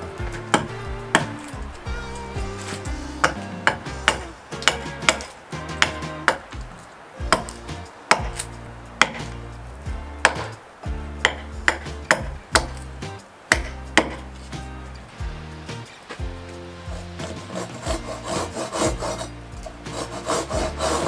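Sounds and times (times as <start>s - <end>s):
background music: 0.0s - 21.0s
axe chopping wood: 0.3s - 1.5s, 2.6s - 9.4s, 10.2s - 10.6s, 11.2s - 12.9s, 13.5s - 14.3s.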